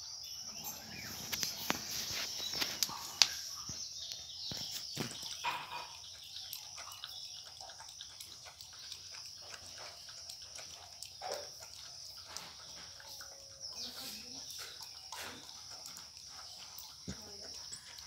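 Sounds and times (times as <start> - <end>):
dog lapping from bowl: 0.5 - 18.0.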